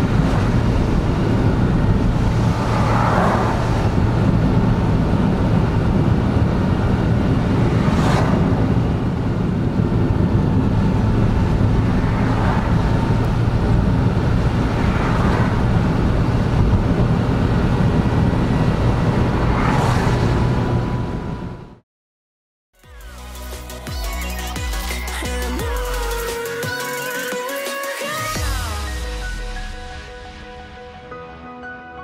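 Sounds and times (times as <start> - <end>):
car engine hum: 0.0 - 21.8.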